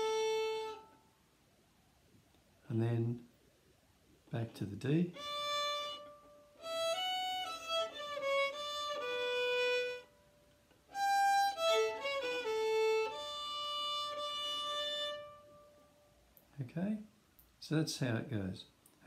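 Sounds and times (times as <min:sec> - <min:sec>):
fiddle playing: 0:00.0 - 0:01.1, 0:05.0 - 0:15.9.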